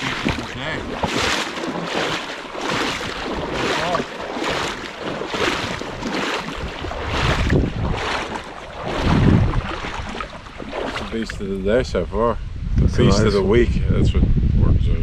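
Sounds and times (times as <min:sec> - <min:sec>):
wading through shallow water: 0:00.0 - 0:11.9
wind rumble on microphone: 0:00.0 - 0:15.0.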